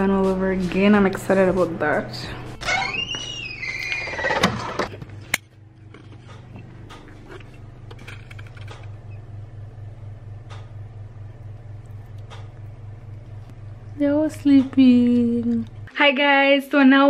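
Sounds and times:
low pulsing hum: 0:04.8 - 0:16.0.

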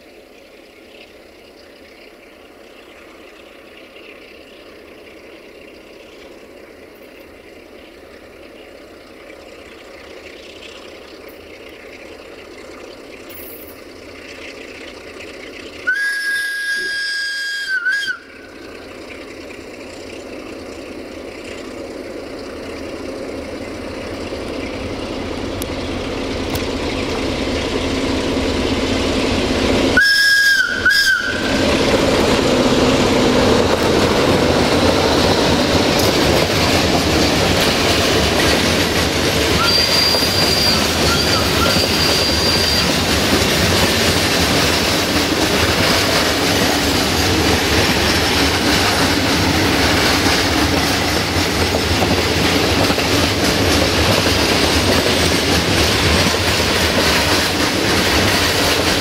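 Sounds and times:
diesel train approaching: 0:00.0 - 0:59.0
train horn blasts: 0:15.9 - 0:18.4, 0:30.0 - 0:31.7.

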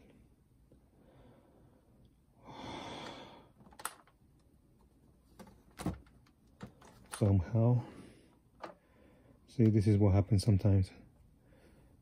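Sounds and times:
person sighing: 0:02.4 - 0:03.5.

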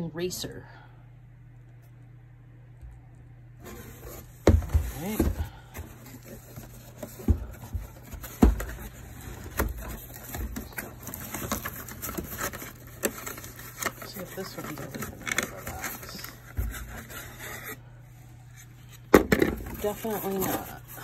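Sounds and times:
cardboard scraping: 0:03.6 - 0:17.9, 0:18.5 - 0:21.0
cardboard boxes knocking: 0:04.4 - 0:05.9, 0:07.0 - 0:08.9.

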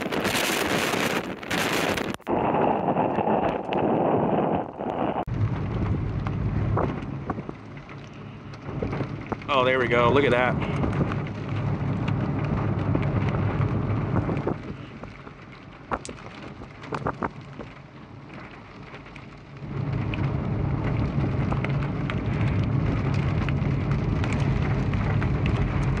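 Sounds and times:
vehicle wind and road noise: 0:00.0 - 0:26.0.

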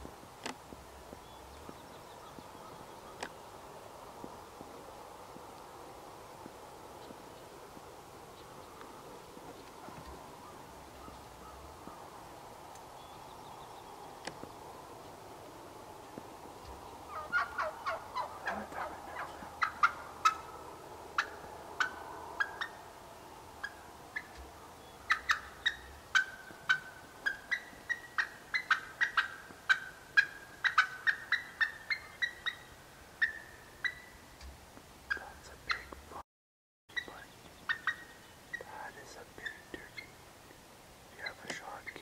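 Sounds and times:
wild turkeys clucking and yelping: 0:14.2 - 0:36.0, 0:36.9 - 0:42.0.

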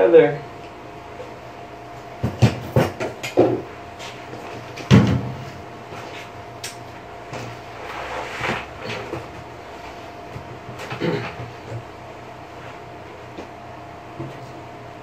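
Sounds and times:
loud thump: 0:04.9 - 0:05.4.

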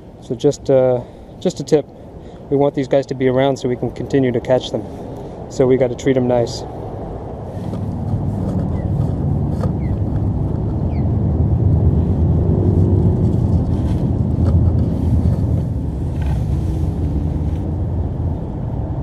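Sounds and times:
loud low rumble: 0:07.0 - 0:19.0.

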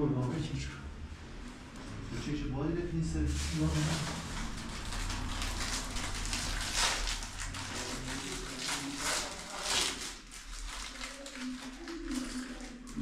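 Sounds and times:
packet crinkling: 0:03.3 - 0:13.0.

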